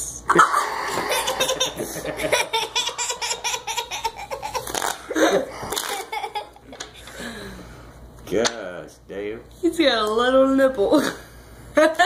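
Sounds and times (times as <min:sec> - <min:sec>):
hearty laughter: 0:01.0 - 0:06.6.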